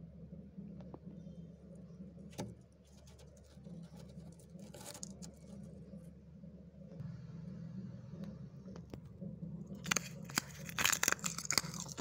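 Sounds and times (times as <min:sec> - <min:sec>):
steady low hum: 0:00.0 - 0:12.0
freezer frost cracking: 0:09.7 - 0:12.0.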